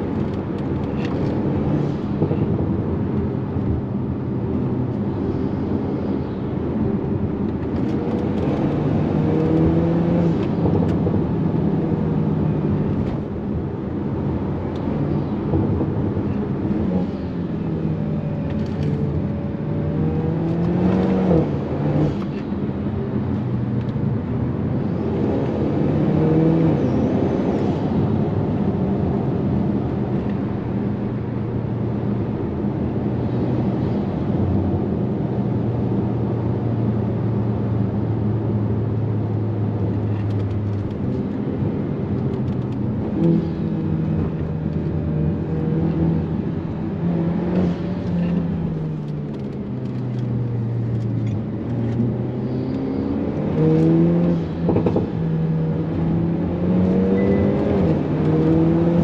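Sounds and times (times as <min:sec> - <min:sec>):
car engine revving: 0:42.4 - 0:59.0.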